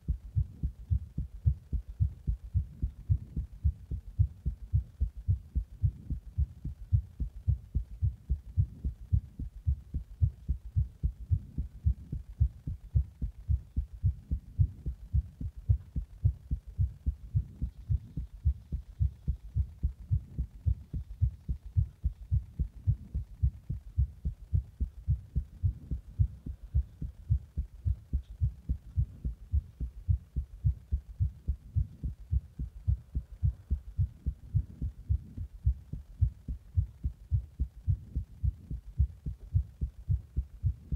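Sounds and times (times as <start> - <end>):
human heartbeat thumps: 0.0 - 40.9.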